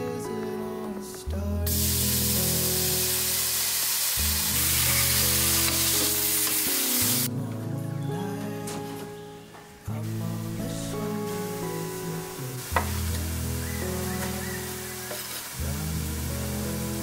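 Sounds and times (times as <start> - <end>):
soft background music: 0.0 - 17.0
food sizzling in hot oil: 1.7 - 7.3, 10.0 - 17.0.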